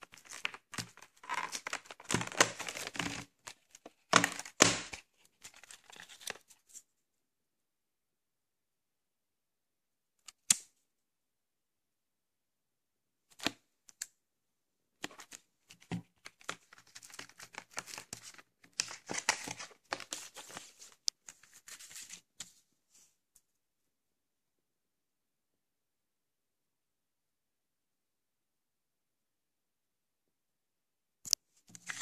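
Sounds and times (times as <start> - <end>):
cellophane crinkling: 0.0 - 6.5.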